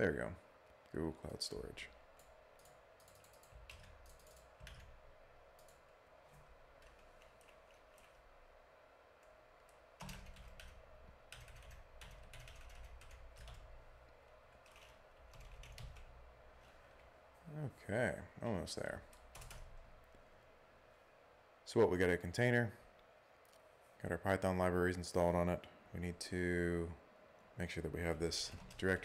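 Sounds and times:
faint keyboard typing: 0.8 - 8.4, 9.2 - 17.2, 18.8 - 20.0, 28.4 - 29.0.

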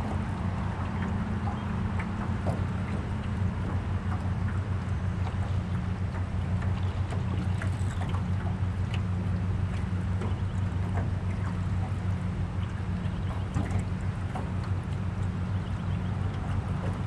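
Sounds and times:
small boat motor humming: 0.0 - 17.0
water lapping against hull: 0.0 - 17.0.

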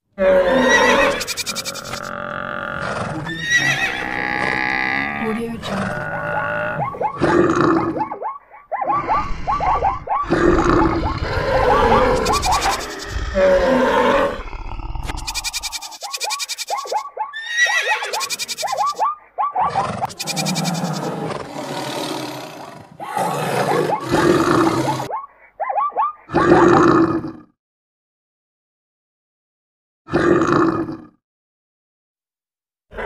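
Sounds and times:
animal roars and grunts: 0.2 - 16.1, 19.5 - 25.1, 26.3 - 27.6, 30.1 - 31.2
rising and falling animal cries: 0.2 - 26.6.

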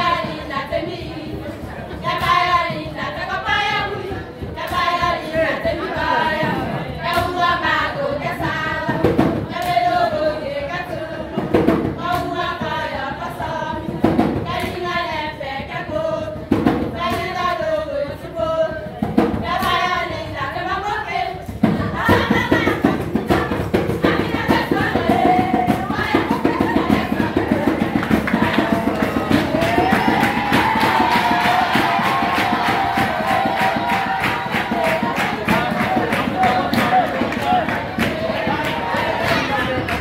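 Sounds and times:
group singing: 0.0 - 40.0
drum beat: 8.4 - 12.8, 21.3 - 40.0.

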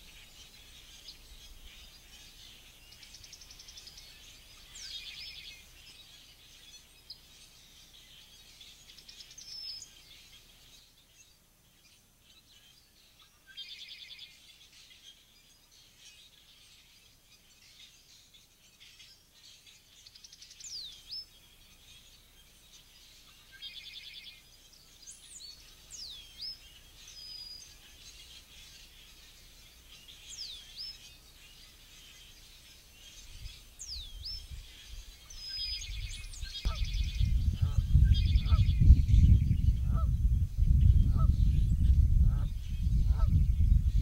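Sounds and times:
songbirds whistling: 0.0 - 11.0, 12.6 - 44.0
low rumbling noise: 36.8 - 44.0.

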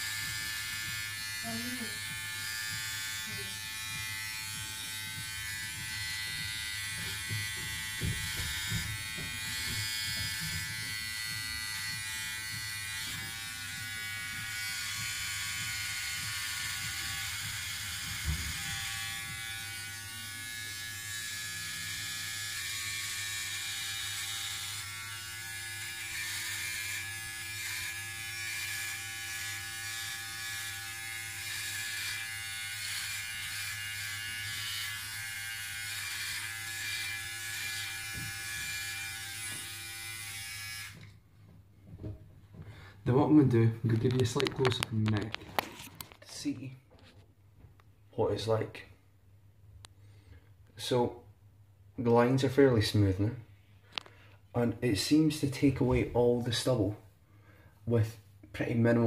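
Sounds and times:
electric trimmer buzzing: 0.0 - 41.2.

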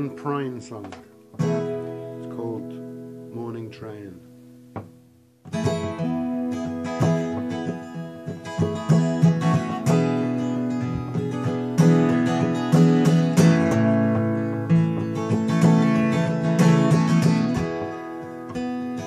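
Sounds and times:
acoustic guitar strumming: 0.0 - 19.0.

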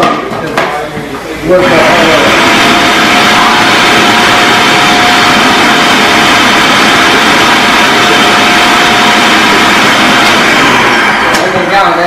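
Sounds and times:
electric food chopper whirring: 1.6 - 11.6.

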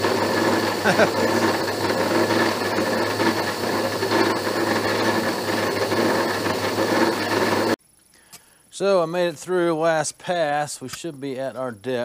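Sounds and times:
machine hum: 0.0 - 7.8.

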